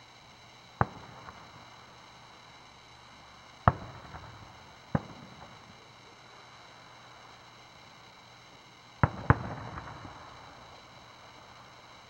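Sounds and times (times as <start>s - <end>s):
firework shells bursting: 0.4s - 6.0s, 9.0s - 12.0s.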